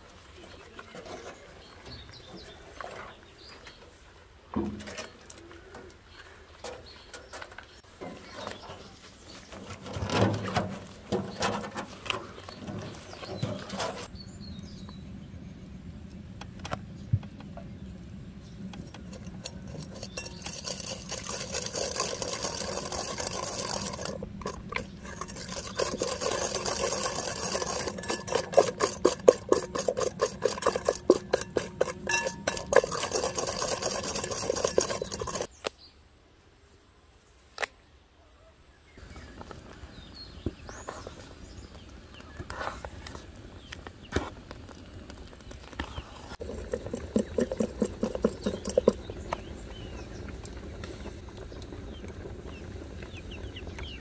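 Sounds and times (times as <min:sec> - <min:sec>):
whisk clicking in glass bowl: 0:19.1 - 0:35.5, 0:46.4 - 0:49.0.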